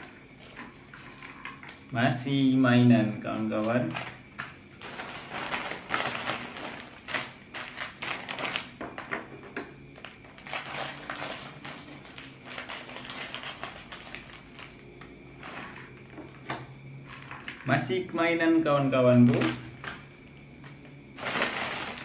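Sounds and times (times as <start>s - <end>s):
plastic packets crinkling: 3.3s - 9.3s, 10.0s - 17.8s, 20.7s - 22.0s.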